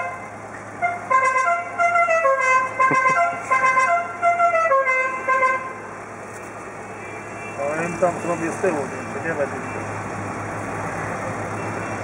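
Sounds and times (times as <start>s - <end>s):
musical car horn tune: 0.0s - 5.8s.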